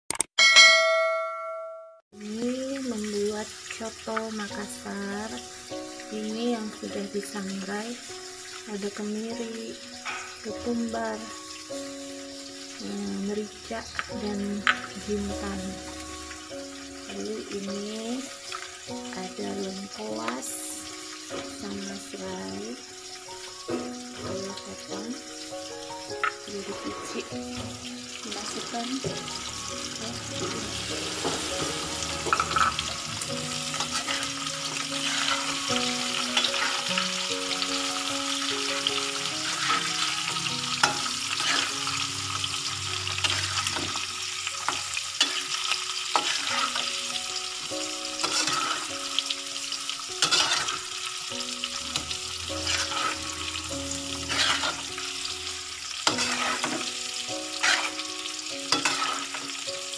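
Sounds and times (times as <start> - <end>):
quiet background tune: 2.2 - 59.9
shallots sizzling in hot oil: 2.2 - 59.9
spatula scraping a wok: 29.9 - 37.7, 38.3 - 47.2, 48.2 - 49.1, 50.2 - 59.7.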